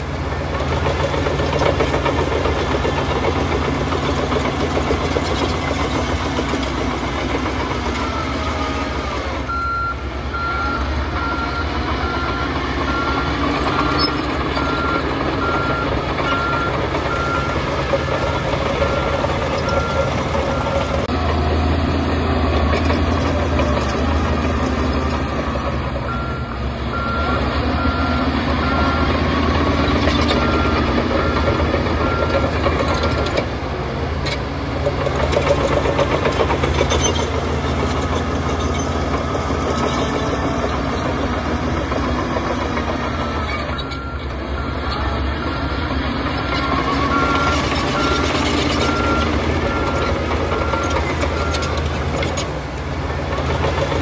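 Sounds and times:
bulldozer diesel engine running: 0.0s - 54.0s
reversing alarm beeping: 9.5s - 17.8s, 26.0s - 29.2s, 30.0s - 33.3s, 43.0s - 45.9s, 46.5s - 51.8s.

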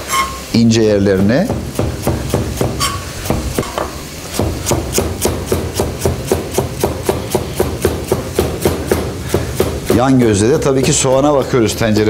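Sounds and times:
knife chopping on cutting board: 1.4s - 11.0s.

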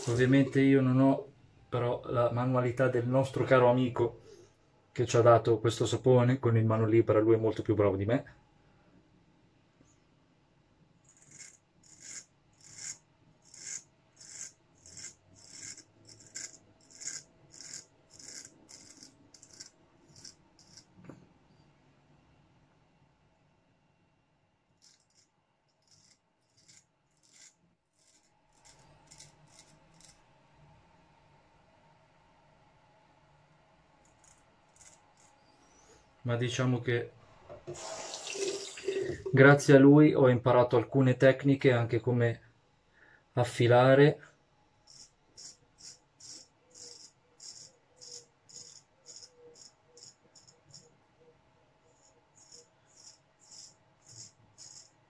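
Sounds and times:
razor scraping beard stubble: 11.0s - 21.0s, 24.8s - 30.3s, 34.0s - 35.5s, 44.9s - 50.9s, 51.9s - 55.0s.

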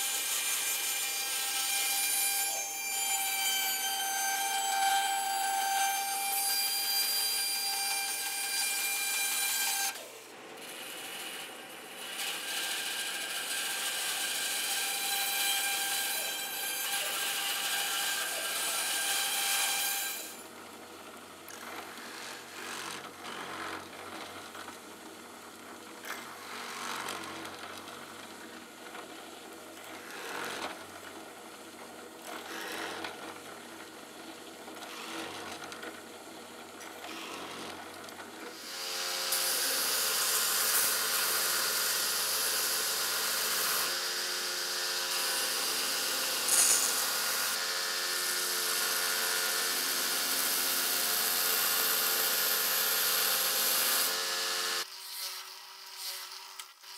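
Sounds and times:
belt grinder running: 21.5s - 24.6s, 32.3s - 33.4s, 34.8s - 35.7s, 38.5s - 56.7s
drill press cutting: 45.0s - 47.6s.

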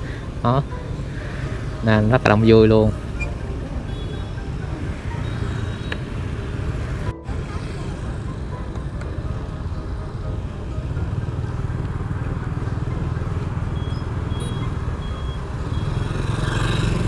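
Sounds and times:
motorbike engines: 0.0s - 17.0s
traffic rumble: 0.0s - 17.0s
short high beeps: 13.7s - 15.9s.

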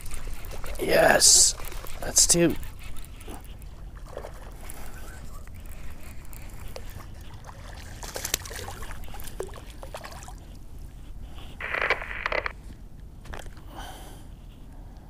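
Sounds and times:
fish splashing in water: 6.9s - 10.4s
rustling and scraping: 11.5s - 12.7s.

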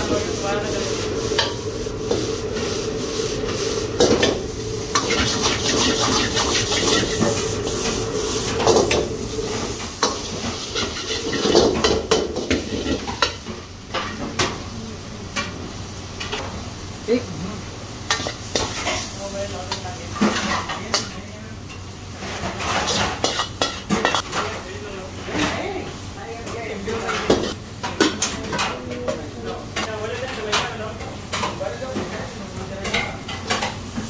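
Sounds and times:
ladle scraping a wok: 0.0s - 13.5s, 18.1s - 24.6s
gas burner hissing: 0.0s - 27.9s
rice sizzling: 0.0s - 34.0s.

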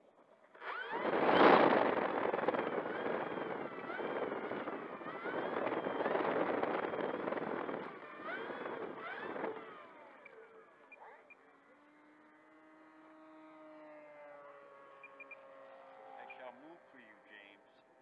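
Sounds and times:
model plane propeller whoosh: 0.5s - 10.7s
electric motor whine: 0.5s - 18.0s.

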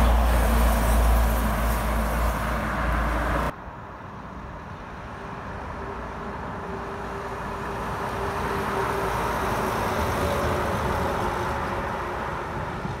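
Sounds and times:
truck engine drone: 0.0s - 3.6s
tyre and road noise: 0.0s - 13.0s.

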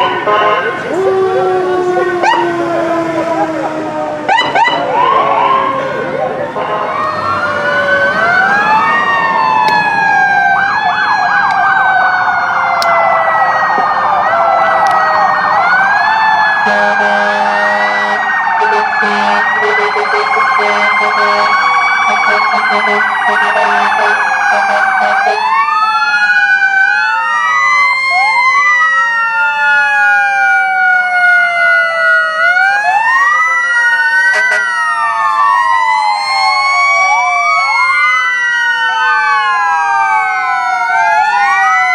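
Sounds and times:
emergency sirens wailing: 0.0s - 41.9s.

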